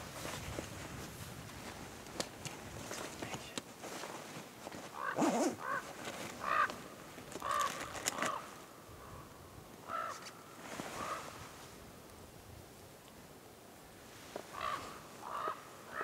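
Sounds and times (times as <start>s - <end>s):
crow cawing: 5.0s - 5.8s, 6.4s - 6.8s, 7.4s - 10.2s, 11.0s - 11.3s, 14.5s - 16.0s.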